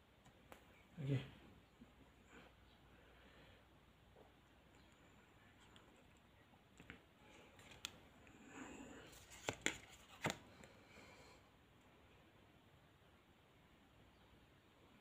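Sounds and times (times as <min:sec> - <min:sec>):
cards sliding rustle: 0:07.3 - 0:08.0, 0:09.0 - 0:10.7.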